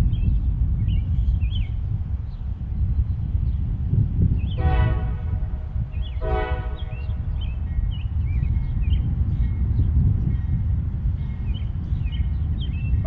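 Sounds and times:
birds chirping: 0.0 - 13.0
low train rumble: 0.0 - 13.0
locomotive air horn blasts: 4.6 - 7.2.

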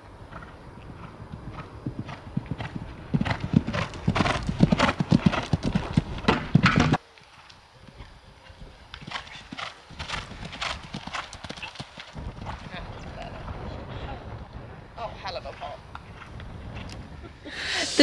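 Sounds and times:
horse hoofbeats: 0.3 - 13.6.

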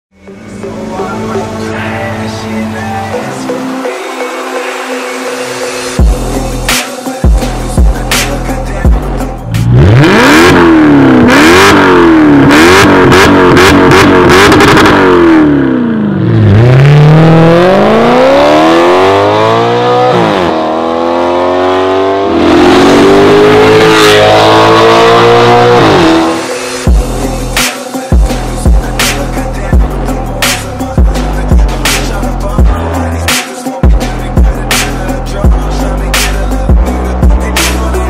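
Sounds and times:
car engine revving: 7.5 - 27.6
car accelerating at full throttle: 8.7 - 27.6.

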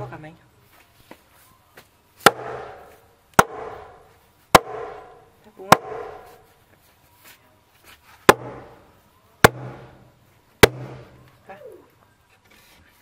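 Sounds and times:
wooden mallet striking timber: 2.2 - 6.4, 8.3 - 8.8, 9.4 - 10.0, 10.6 - 11.2.

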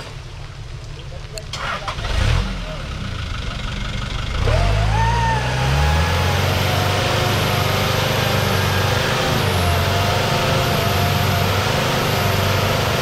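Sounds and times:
off-road engine running hard: 1.4 - 13.0.

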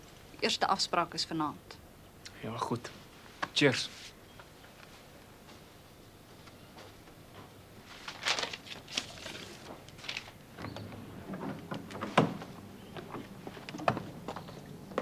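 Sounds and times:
door shutting: 10.6 - 14.2.

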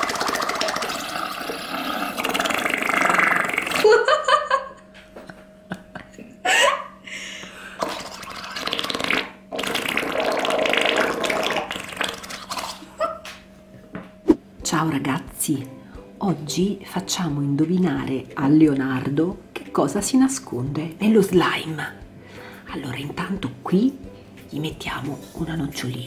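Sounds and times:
air bubbling through slime: 0.0 - 3.9, 7.8 - 12.9.

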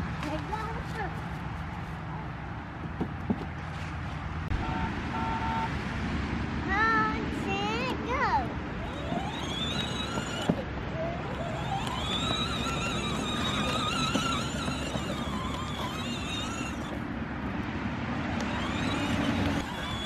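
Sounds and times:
toy car motor whine: 8.7 - 17.0, 18.3 - 20.0
wheels rolling over leaves: 8.8 - 17.0, 18.4 - 20.0.

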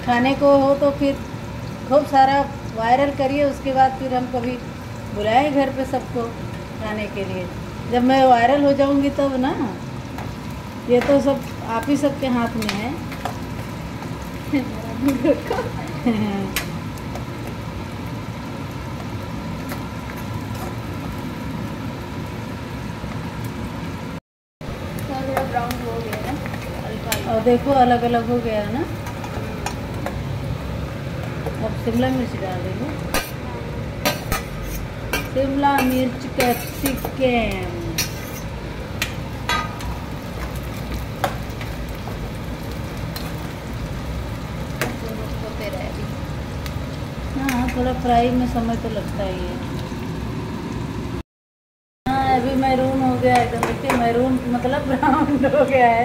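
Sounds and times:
onions frying: 0.0 - 51.2, 52.1 - 56.0
steel ladle clinking against pan: 34.1 - 37.2
steel ladle clicking on pan: 39.0 - 39.9.

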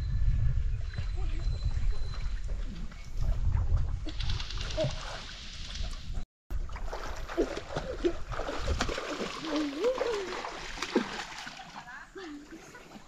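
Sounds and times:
river water splashing: 6.6 - 13.0.

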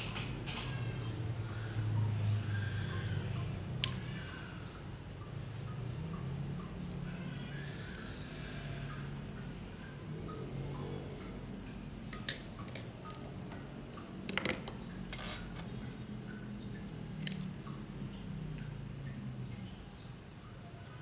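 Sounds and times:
steady low hum: 1.1 - 21.0
metal tools clinking on tile: 14.4 - 16.0
ringing metallic clink: 15.1 - 15.9.

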